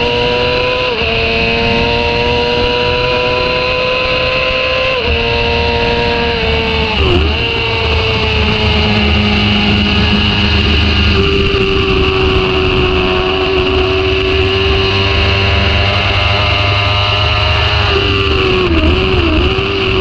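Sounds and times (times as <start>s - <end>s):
motorcycle engine at high revs: 0.0s - 20.0s
rushing noise: 5.2s - 20.0s.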